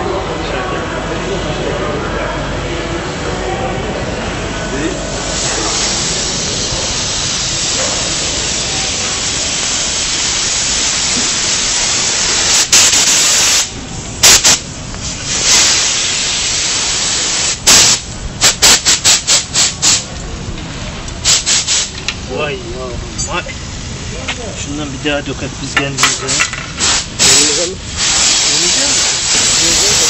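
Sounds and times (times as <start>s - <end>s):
pressure washer jet hissing: 4.9s - 20.1s, 21.2s - 22.4s, 23.4s - 30.0s.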